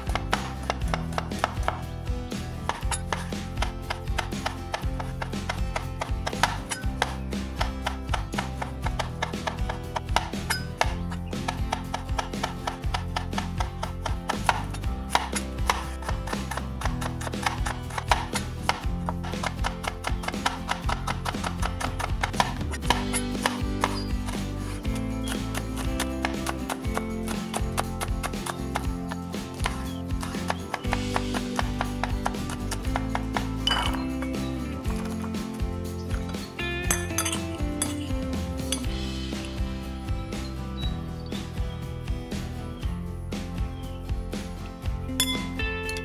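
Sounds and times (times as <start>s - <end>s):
knife chopping on wooden board: 0.0s - 2.0s, 2.6s - 34.0s.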